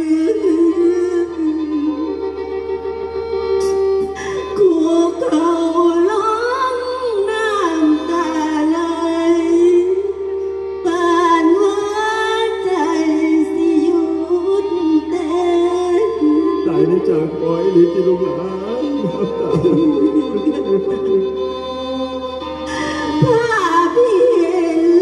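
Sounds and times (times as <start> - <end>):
instrumental accompaniment with held tones: 0.0 - 25.0
person singing ornamented melody: 10.9 - 21.8.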